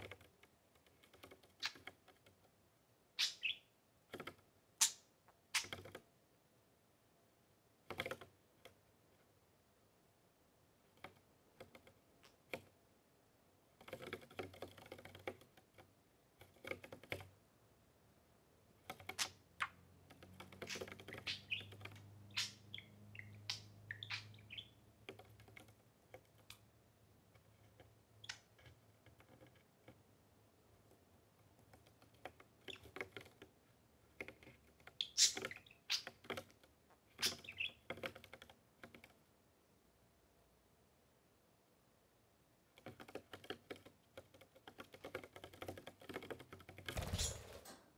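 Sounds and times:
budgerigar chirps: 3.2 - 3.7, 20.7 - 24.8, 37.2 - 37.8.

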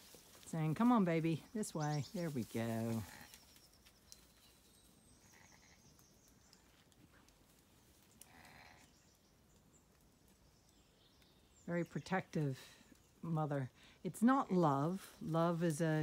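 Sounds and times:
lamb bleating: 5.2 - 5.8.

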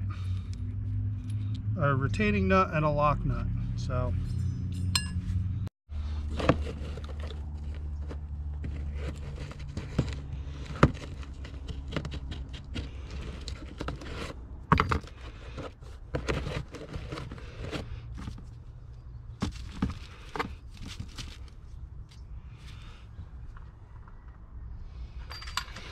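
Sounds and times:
metallic clicks and scrapes: 6.2 - 18.4.

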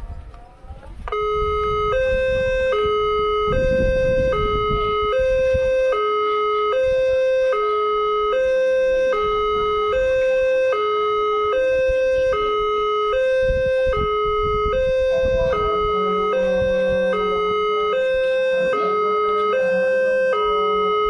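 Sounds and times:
level crossing two-tone alarm: 1.1 - 21.0.

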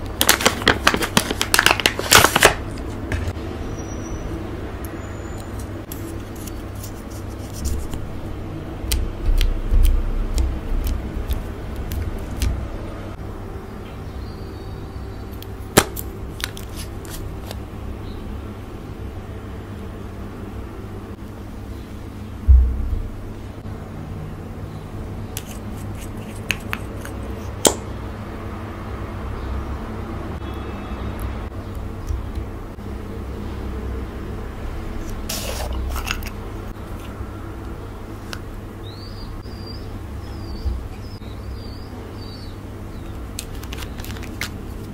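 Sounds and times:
low hum: 17.6 - 25.3
low rumble: 22.4 - 23.6.

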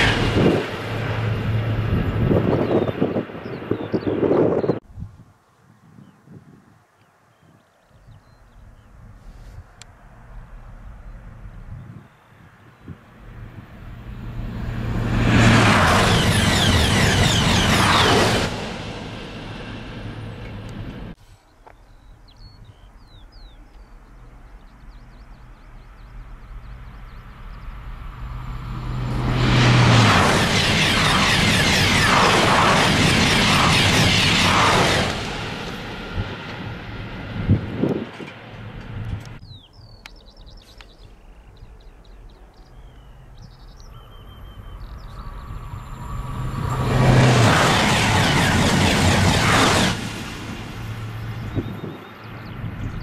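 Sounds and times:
high-speed train rushing: 0.0 - 4.6, 12.9 - 21.2, 24.1 - 39.4, 44.1 - 53.0
passing train: 0.0 - 4.8, 9.0 - 53.0
small birds chirping: 21.4 - 27.8, 39.4 - 45.7.

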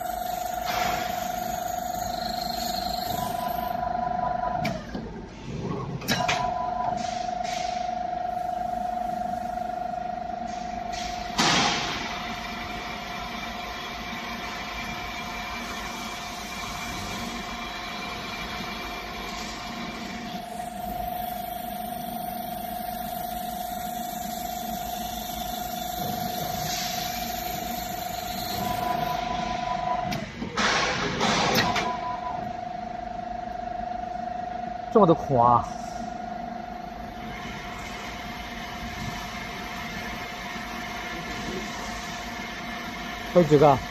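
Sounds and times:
drill spindle motor whine: 0.0 - 4.7, 12.4 - 30.1
machine noise: 0.0 - 43.9.

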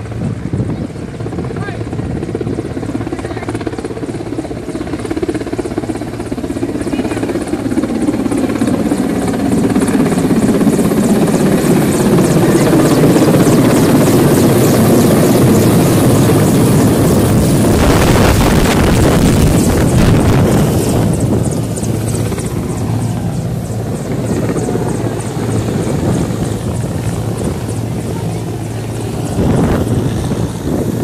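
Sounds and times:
helicopter rotor and turbine: 0.0 - 31.0.

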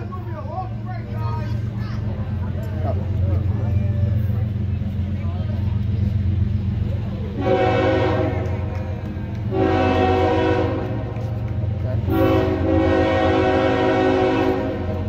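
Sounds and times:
freight train rumbling: 0.0 - 15.0
locomotive air horn blasts: 7.3 - 8.8, 9.5 - 11.3, 12.0 - 15.0.

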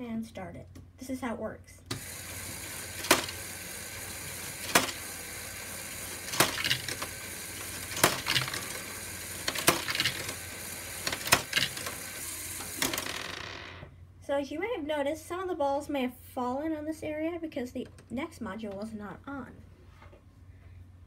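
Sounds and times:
motor and gear whir: 1.9 - 13.0.

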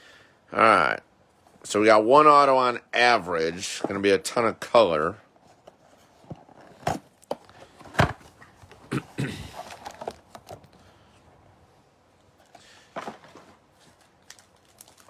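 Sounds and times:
cardboard rustle: 9.5 - 10.7, 12.9 - 15.0.

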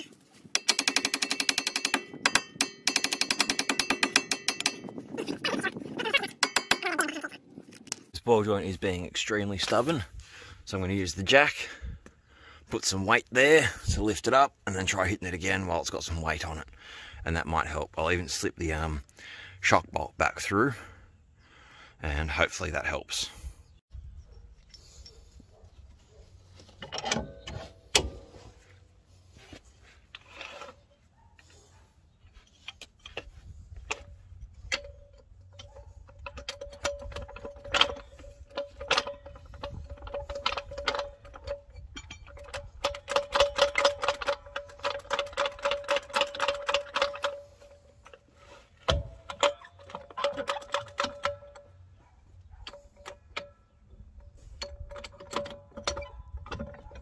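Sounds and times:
metal tools clinking and knocking: 0.1 - 12.0, 24.1 - 57.0.

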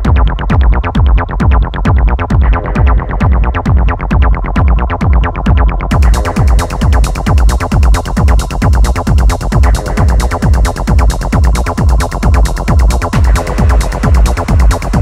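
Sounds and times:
techno kick drum: 0.0 - 15.0.

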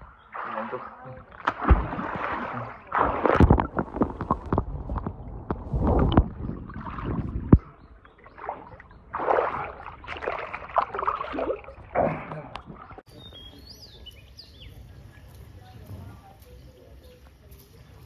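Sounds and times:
birds chirping: 0.0 - 3.0, 6.2 - 18.0
hand splashes: 0.0 - 13.0
pool water splashing and gurgling: 0.0 - 13.2
muffled underwater rumble and knocks: 1.2 - 11.1.

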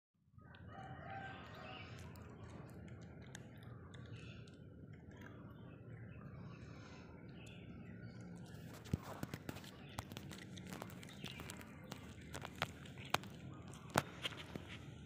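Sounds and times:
cat chewing dry kibble: 0.7 - 5.9, 7.8 - 15.0.

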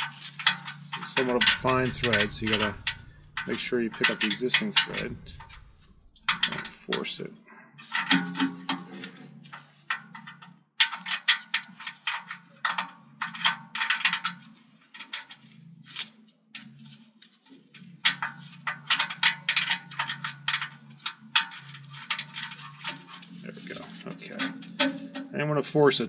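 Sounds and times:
tap wrench clicking and scraping: 17.8 - 25.3.

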